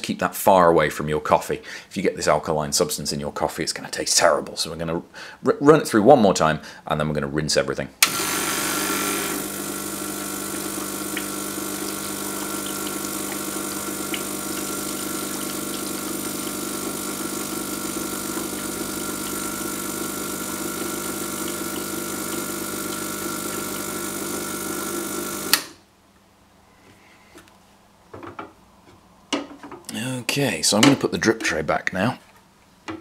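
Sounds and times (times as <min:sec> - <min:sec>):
espresso machine pump running: 0:08.0 - 0:25.7
water pouring into glass: 0:09.4 - 0:24.8.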